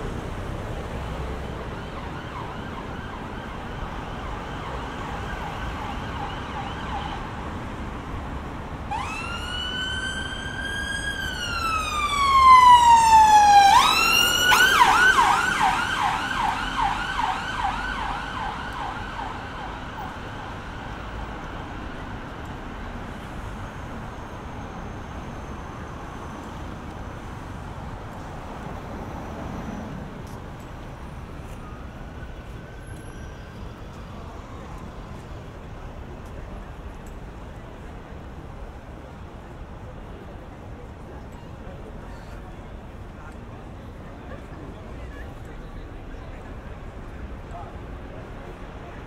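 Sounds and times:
street traffic: 0.0s - 49.0s
emergency vehicle siren: 0.6s - 8.1s, 8.7s - 28.2s, 28.8s - 37.9s.

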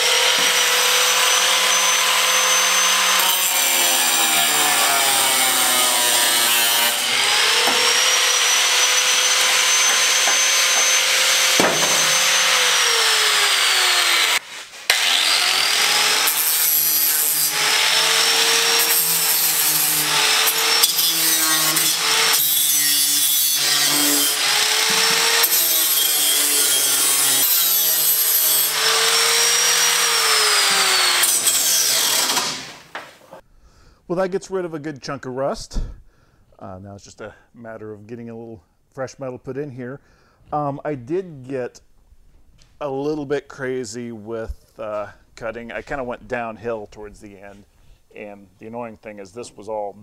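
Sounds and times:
angle grinder cutting metal: 0.0s - 33.0s.

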